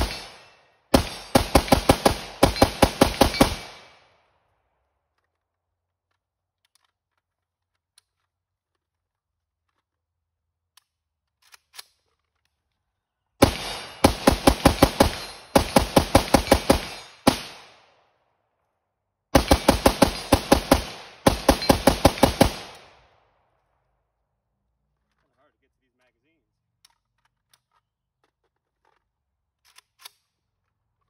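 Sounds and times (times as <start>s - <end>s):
rifle firing rapid shots: 0.0s - 4.1s, 13.4s - 17.9s, 19.3s - 23.2s
gun handling clicks: 5.1s - 8.9s, 29.6s - 30.4s.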